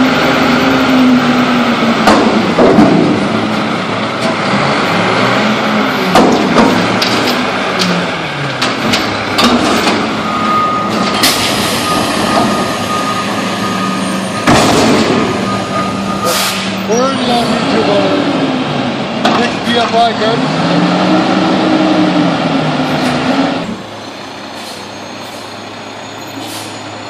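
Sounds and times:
diesel engine revving: 0:00.0 - 0:27.0
container banging and clanking: 0:02.0 - 0:03.4, 0:06.1 - 0:07.5, 0:08.6 - 0:10.1, 0:14.3 - 0:15.5
loud dumpster bang: 0:02.0 - 0:03.6, 0:06.0 - 0:07.3, 0:08.6 - 0:10.2, 0:14.2 - 0:16.8.

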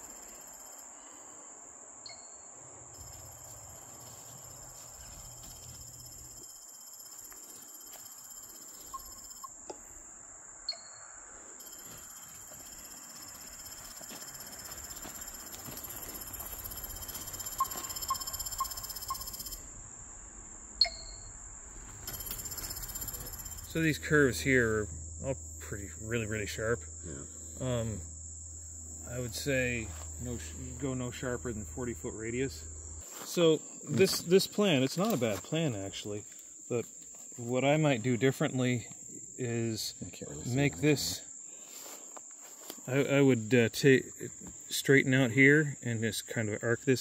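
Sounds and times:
high-pitched insect chorus: 0:00.0 - 0:47.0
ringing beep: 0:02.1 - 0:02.4, 0:11.6 - 0:12.5, 0:16.0 - 0:19.6, 0:20.8 - 0:21.4, 0:22.0 - 0:23.8
short electronic beeps: 0:17.4 - 0:19.6, 0:20.8 - 0:21.3
faint low rumble: 0:19.2 - 0:33.0.

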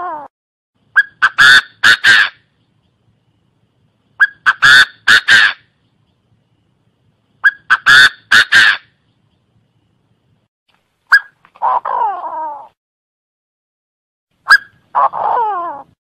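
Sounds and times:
francolin calling: 0:04.1 - 0:06.2.

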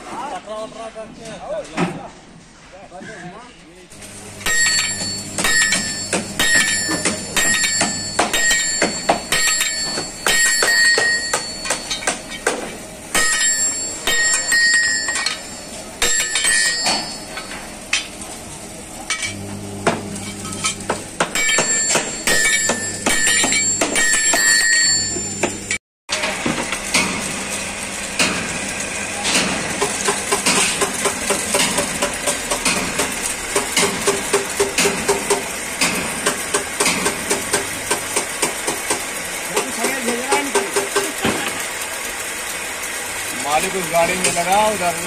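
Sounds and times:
hammer clanking on steel: 0:04.5 - 0:18.1, 0:19.1 - 0:25.6, 0:29.2 - 0:39.0.

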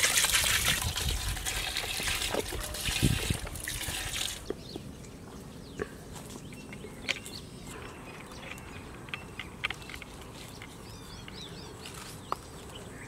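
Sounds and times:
steady outdoor background: 0:00.0 - 0:13.0
small birds chirping: 0:04.4 - 0:13.0.

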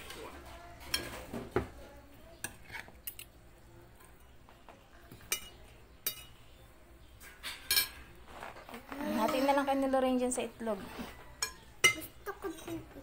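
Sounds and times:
cutlery clinking on a plate: 0:00.8 - 0:01.7, 0:02.4 - 0:03.4, 0:05.1 - 0:06.4, 0:07.2 - 0:08.1, 0:11.0 - 0:12.2.

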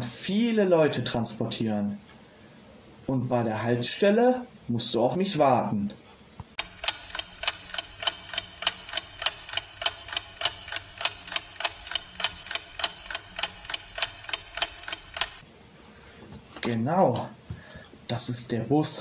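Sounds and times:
clock ticking: 0:06.6 - 0:15.4.

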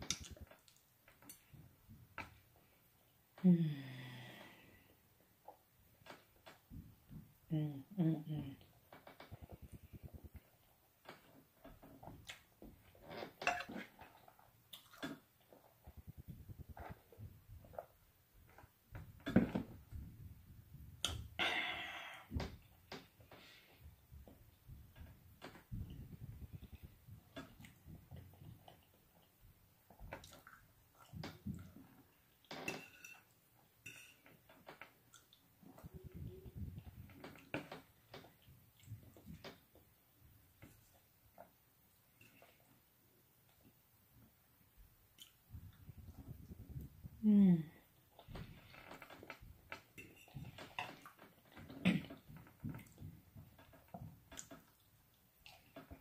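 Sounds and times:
chewing and mouth smacks: 0:00.0 - 0:01.5, 0:14.1 - 0:15.9, 0:29.9 - 0:32.4, 0:34.8 - 0:35.8, 0:45.1 - 0:46.9.

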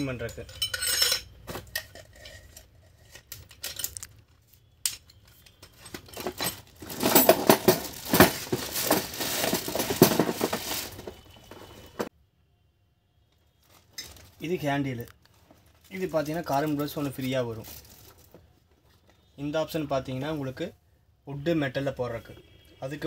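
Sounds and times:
plastic wrapping crinkling: 0:06.2 - 0:12.1, 0:13.6 - 0:18.6.

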